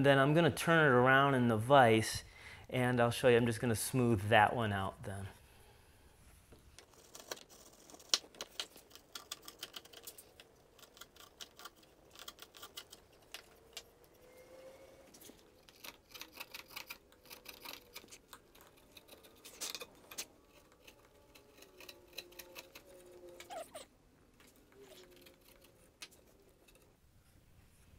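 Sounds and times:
chisel shaving wood: 6.8s - 27.1s.

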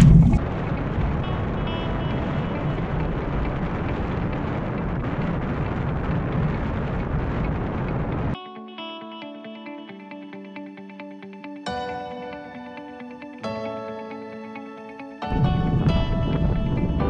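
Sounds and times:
road noise: 0.0s - 8.3s
wind rumble: 0.0s - 8.4s, 15.3s - 17.0s
soft music: 8.4s - 17.0s.

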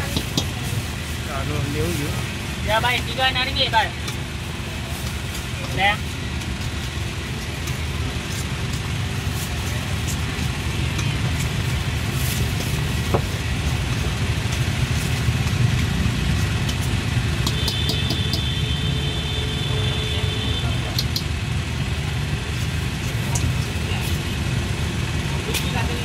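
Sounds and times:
low engine rumble: 0.0s - 26.0s.

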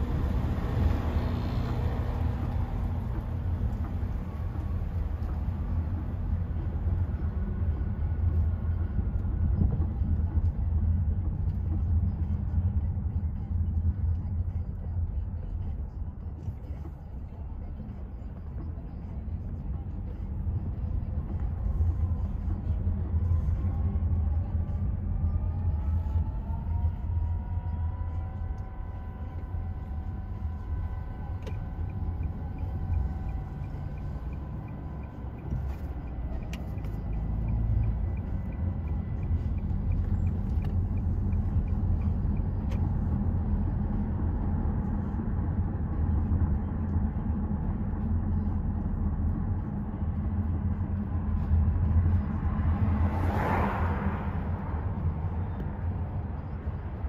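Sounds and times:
engine and tyre rumble: 0.0s - 57.0s
faint whine rising in pitch: 21.4s - 57.0s.

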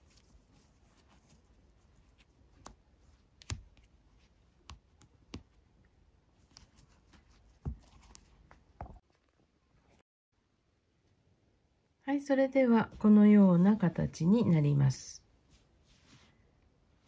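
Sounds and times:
cord rustling: 0.0s - 10.0s.

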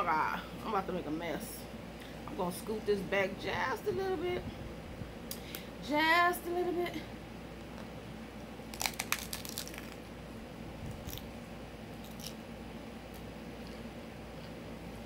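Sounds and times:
taco shell crunching: 8.6s - 10.2s, 10.9s - 12.4s.

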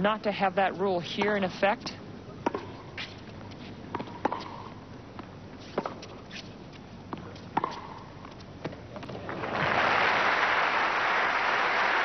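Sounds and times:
tennis ball bounces: 1.2s - 3.1s, 3.9s - 6.1s, 7.1s - 9.2s
crowd applause: 9.3s - 12.0s.

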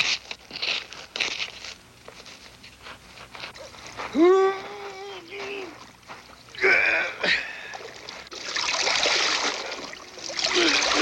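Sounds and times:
water splashing: 7.6s - 11.0s.

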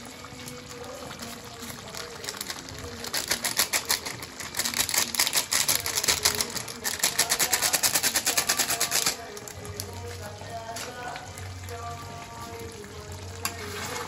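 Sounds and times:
foil packet crinkling: 0.3s - 11.2s.

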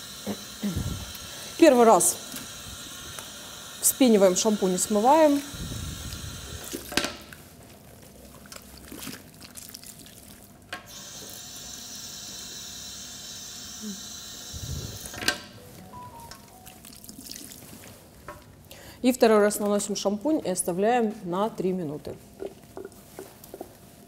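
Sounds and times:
water running over hair into basin: 16.6s - 18.1s.

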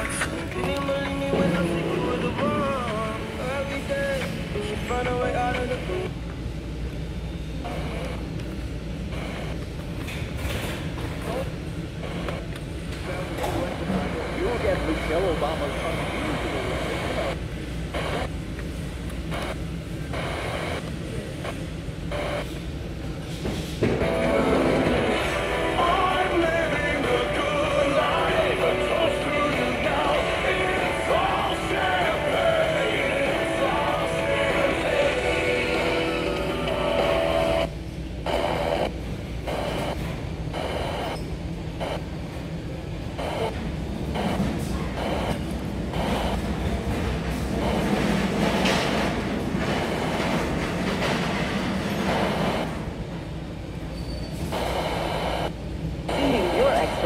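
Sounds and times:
radio static hiss: 11.2s - 18.4s, 19.2s - 22.7s, 24.0s - 42.2s, 43.0s - 46.6s, 54.5s - 57.0s.

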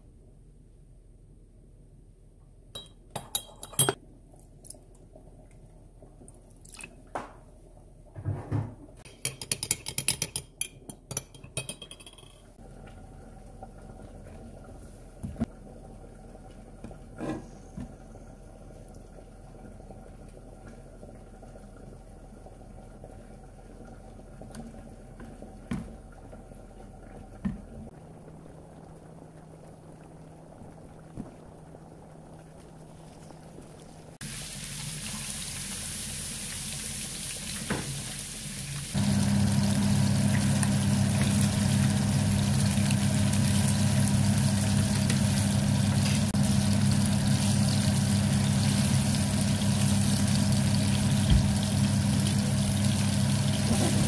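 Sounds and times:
metal spoon clinking in mug: 2.8s - 4.0s, 9.1s - 12.5s.

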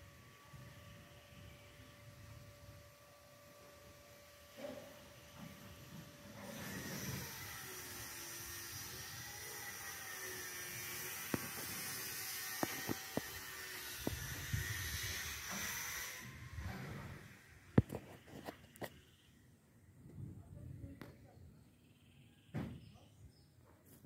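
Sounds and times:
steady hiss: 3.6s - 17.8s.

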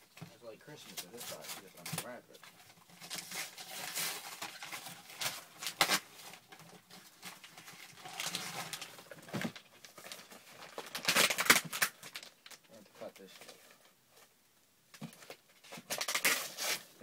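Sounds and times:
paper tearing and crinkling: 0.7s - 12.6s, 15.7s - 17.0s.

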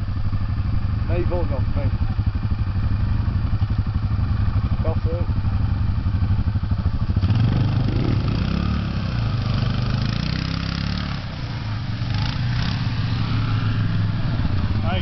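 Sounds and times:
quad engine revving: 7.1s - 15.0s.

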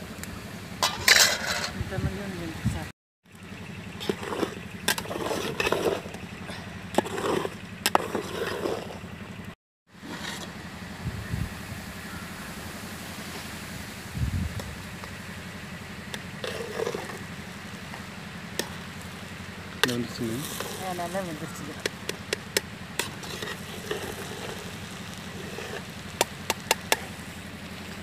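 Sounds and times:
metal spoon scraping pot: 0.8s - 1.8s, 4.0s - 6.2s, 6.9s - 9.0s, 23.0s - 24.7s.

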